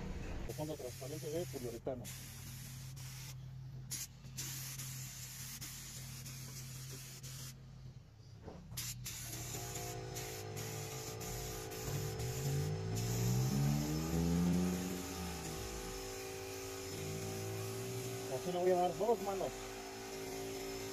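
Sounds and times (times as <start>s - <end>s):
spray gun hissing: 0.5s - 7.6s, 8.8s - 20.9s
rising pitched drone: 9.8s - 19.9s.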